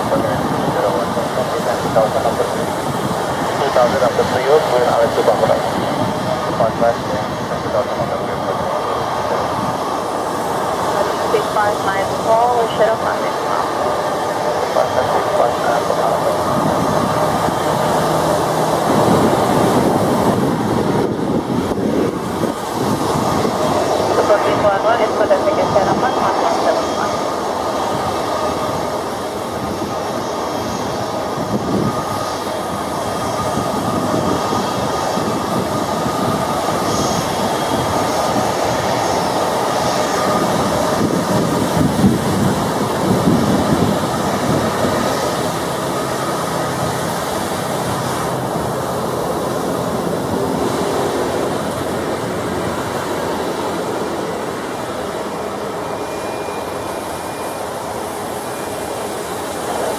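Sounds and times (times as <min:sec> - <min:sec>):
jet engines at taxi power: 0:00.0 - 0:59.9
faint high whine: 0:54.2 - 0:59.9.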